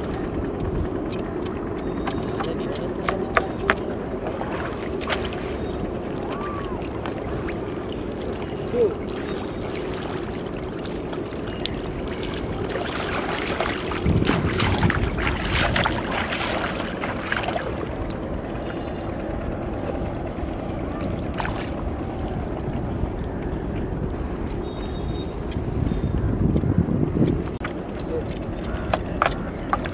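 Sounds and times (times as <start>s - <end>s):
wind: 0.0s - 29.9s
water splashing: 1.1s - 19.0s, 19.8s - 23.2s.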